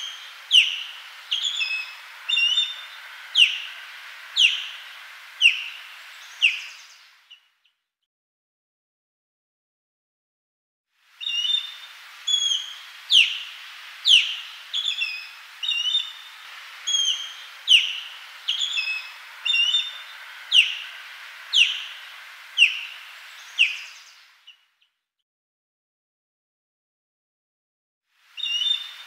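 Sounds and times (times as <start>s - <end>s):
osprey whistled calls: 0.0s - 7.5s, 11.2s - 24.6s, 28.4s - 29.0s
background hiss: 0.0s - 7.6s, 11.0s - 24.8s, 28.1s - 29.0s.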